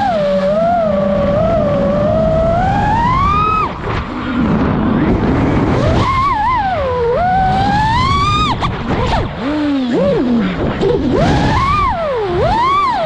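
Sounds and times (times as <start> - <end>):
quadcopter motors whining: 0.0 - 13.0
steady rushing noise: 0.0 - 13.0.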